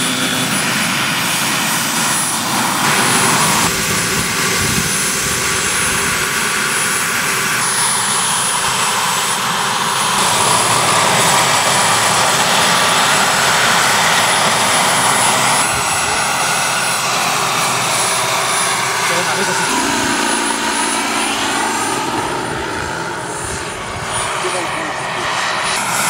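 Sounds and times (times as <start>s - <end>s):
gas turbine high-pitched whine: 0.0s - 26.0s
rush of rotor and exhaust: 0.0s - 26.0s.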